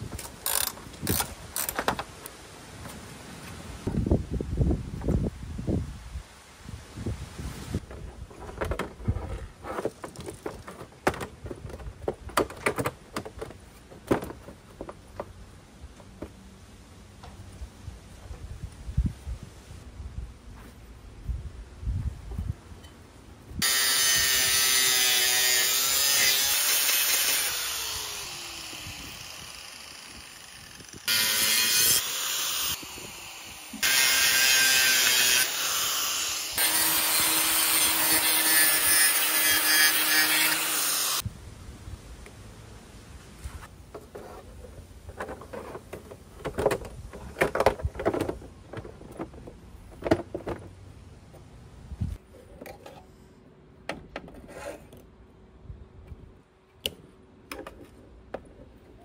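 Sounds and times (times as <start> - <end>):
angle grinder cutting metal: 23.6 - 41.2.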